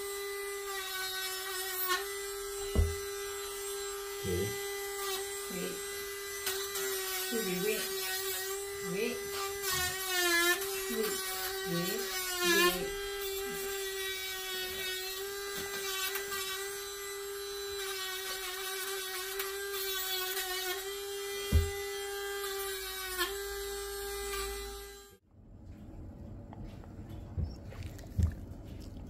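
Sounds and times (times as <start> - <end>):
nail grinder whining: 0.0 - 25.2
knock: 2.7 - 3.0, 21.5 - 21.7.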